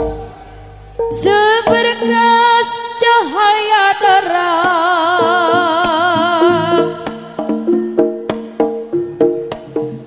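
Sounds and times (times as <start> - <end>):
short pitched notes: 0.0 - 1.5.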